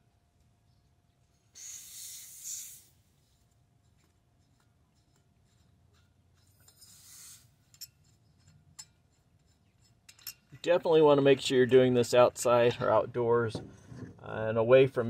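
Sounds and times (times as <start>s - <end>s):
gas hissing from cylinder: 1.5s - 3.4s, 6.6s - 7.8s.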